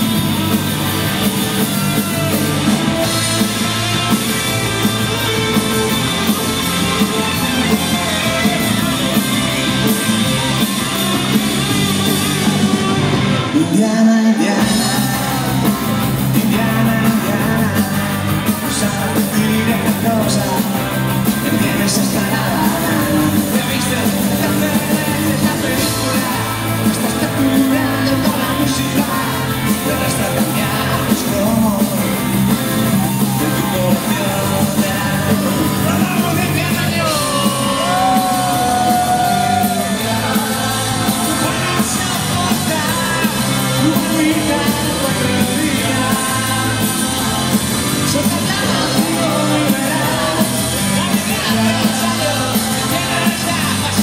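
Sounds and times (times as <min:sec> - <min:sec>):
audience shouting: 0:00.0 - 0:17.8, 0:31.4 - 0:54.0
rock band playing live: 0:00.0 - 0:54.0
man singing lead vocal: 0:13.4 - 0:54.0.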